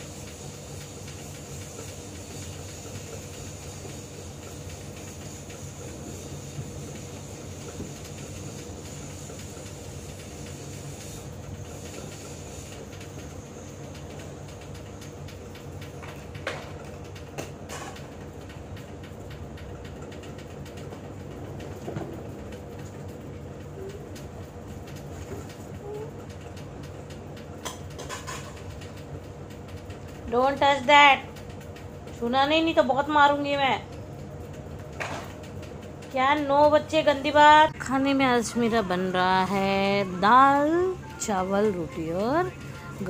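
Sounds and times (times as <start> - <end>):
low mechanical hum: 0.0 - 43.0.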